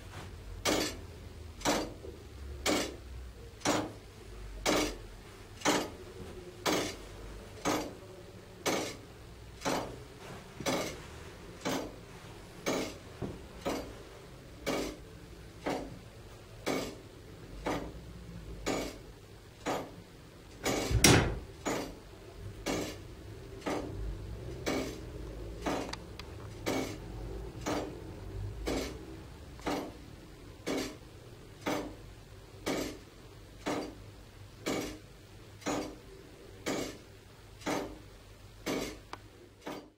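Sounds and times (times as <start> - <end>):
heavy clock mechanism clunk: 0.6 - 3.0, 3.6 - 4.0, 4.6 - 5.0, 5.6 - 6.0, 6.6 - 7.0, 7.6 - 8.0, 8.6 - 9.0, 9.6 - 10.0, 10.6 - 11.0, 11.6 - 12.0, 12.6 - 14.0, 14.6 - 15.0, 15.6 - 16.0, 16.6 - 17.0, 17.6 - 18.0, 18.6 - 19.0, 19.6 - 20.0, 20.6 - 23.0, 23.6 - 24.0, 24.6 - 25.9, 26.6 - 28.0, 28.6 - 29.0, 29.6 - 30.0, 30.6 - 31.0, 31.6 - 32.0, 32.6 - 33.0, 33.6 - 34.0, 34.6 - 35.0, 35.6 - 36.0, 36.6 - 37.0, 37.6 - 38.0, 38.6 - 39.9
clock mechanism ticking: 0.6 - 6.0, 6.6 - 8.0, 8.6 - 10.0, 10.6 - 11.0, 11.6 - 12.0, 12.6 - 13.0, 13.6 - 39.9.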